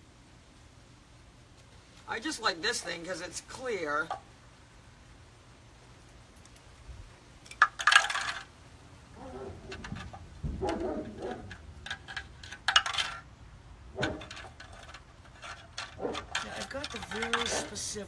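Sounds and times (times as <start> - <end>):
small hard object clinking: 7.4 - 8.5, 9.7 - 13.3, 14.0 - 18.0
rattling bursts: 7.5 - 8.5, 9.2 - 18.0.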